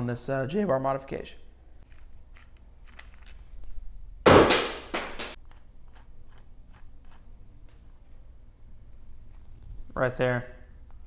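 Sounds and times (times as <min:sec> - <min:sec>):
metal rods clinking: 0:01.8 - 0:03.7, 0:04.8 - 0:05.4
metal parts clattering: 0:01.9 - 0:03.6.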